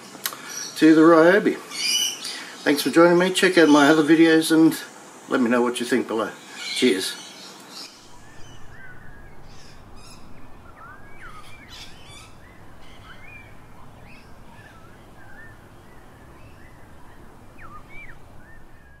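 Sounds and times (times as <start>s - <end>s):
harsh scratchy bird calls: 0.0s - 19.0s
birds whistling: 1.7s - 5.1s, 6.3s - 19.0s.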